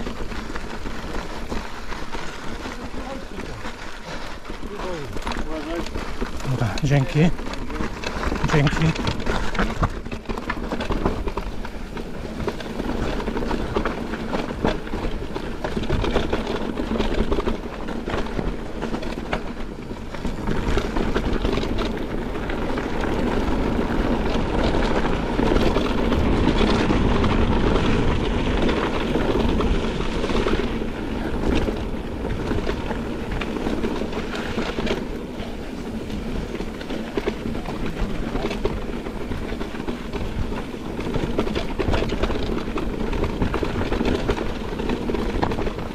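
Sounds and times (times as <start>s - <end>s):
bike rattling: 0.0s - 45.9s
rumble on microphone: 0.0s - 45.9s
tyres rolling over stones: 0.0s - 45.9s.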